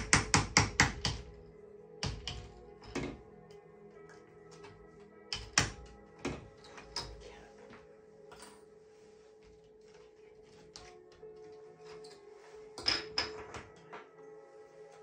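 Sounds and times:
wooden mallet tapping wood: 0.0 - 1.4, 2.0 - 3.2
background music: 0.0 - 15.0.

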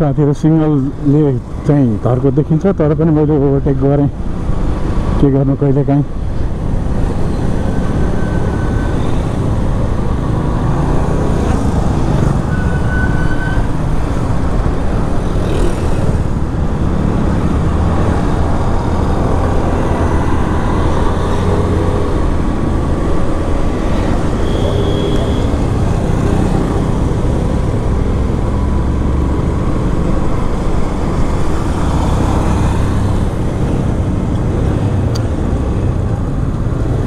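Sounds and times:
short high beeps: 24.4 - 25.6.

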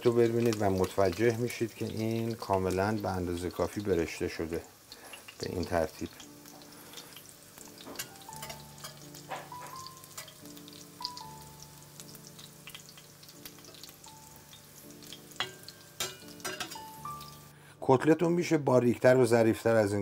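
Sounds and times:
oil sizzling and crackling: 0.0 - 17.6
soft background music: 0.0 - 20.0
metal spatula clicking on pan: 8.0 - 9.2, 9.8 - 10.4, 15.1 - 16.9.

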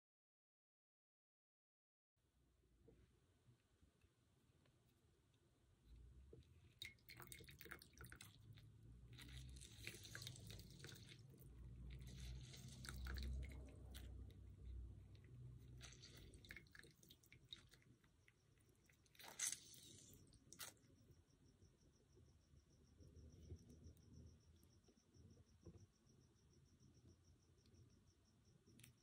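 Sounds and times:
juice dripping into soup: 6.3 - 20.9
lemon squishing and crackling: 6.8 - 14.4, 15.5 - 18.1, 18.8 - 20.8.

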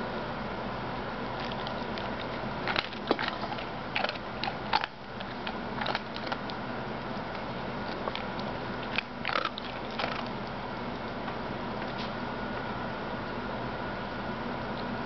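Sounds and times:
dog crunching kibble: 1.2 - 11.2.

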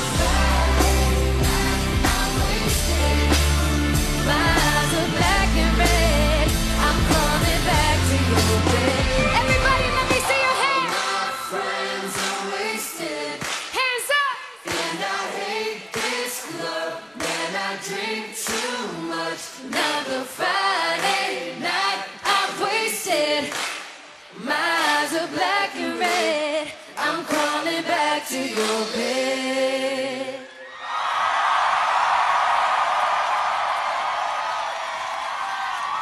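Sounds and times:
person singing: 0.0 - 13.2
live pop music: 0.0 - 15.4.

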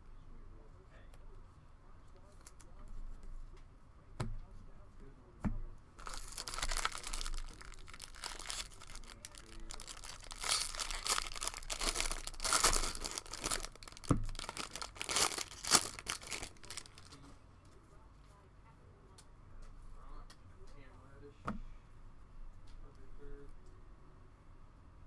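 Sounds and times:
foil wrapper tearing and crinkling: 6.0 - 17.2.

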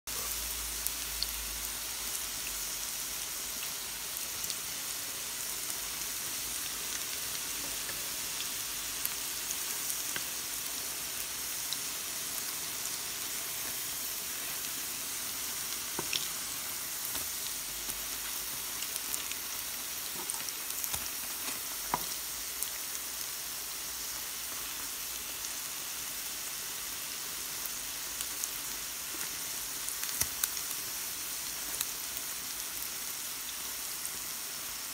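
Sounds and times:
fritters sizzling in oil: 0.1 - 34.9.

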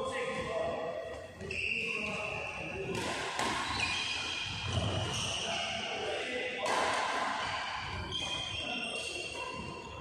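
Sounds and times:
shoes squeaking on court: 0.3 - 5.7, 7.4 - 10.0
racket hitting shuttlecock: 2.8 - 5.1, 6.6 - 8.4.

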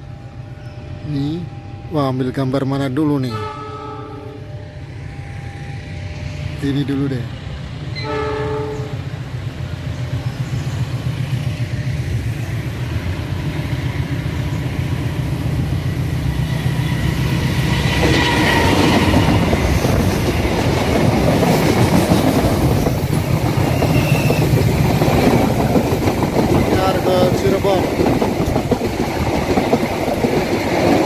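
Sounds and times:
train rumble: 0.0 - 31.0
wheels clattering on rail: 17.3 - 31.0
high wheel squeal: 23.6 - 24.6.

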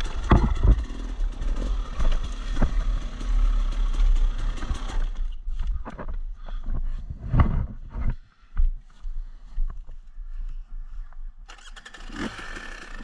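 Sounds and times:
knocks and clatter: 0.0 - 3.3
dirt bike engine running: 0.0 - 6.1, 11.6 - 13.0.

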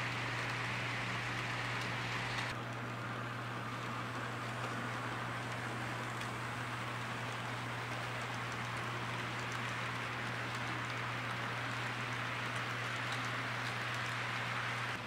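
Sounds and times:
model train whirring rumble: 0.0 - 15.0.

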